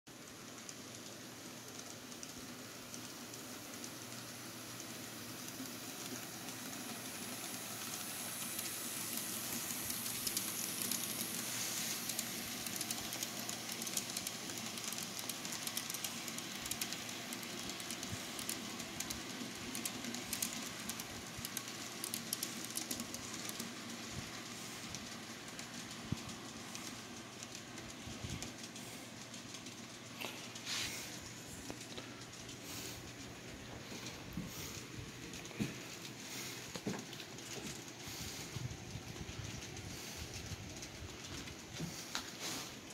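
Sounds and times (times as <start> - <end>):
model train motors whirring: 0.1 - 42.9
wheels clicking over rail joints: 0.1 - 42.9.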